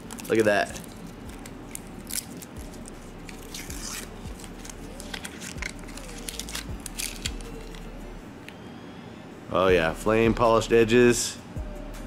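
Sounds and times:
paper peeling and rustling: 0.0 - 7.9.

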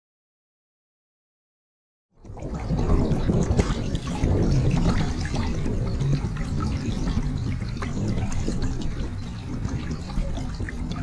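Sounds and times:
water sloshing and splashing: 2.2 - 11.0
wind buffeting microphone: 2.3 - 11.0.

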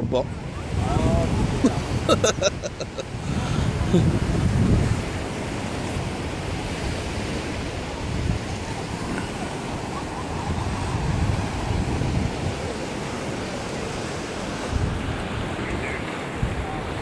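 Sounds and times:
surf washing on a beach: 0.0 - 17.0
wind buffeting the microphone: 0.0 - 17.0.

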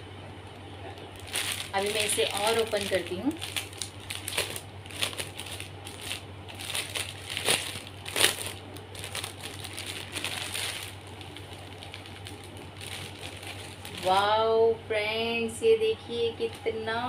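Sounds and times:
plastic bag crinkling: 1.0 - 14.3.

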